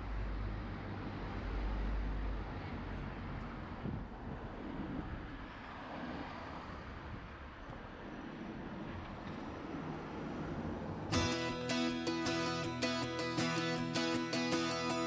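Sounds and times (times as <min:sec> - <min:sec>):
traffic noise: 0:00.0 - 0:15.0
wind rumble on microphone: 0:03.5 - 0:11.1.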